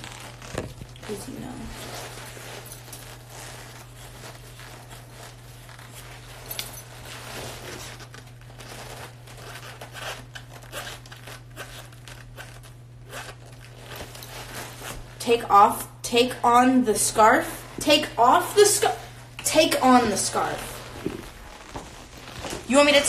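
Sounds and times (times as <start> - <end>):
clothing rustling: 0.0 - 15.7, 16.9 - 23.0.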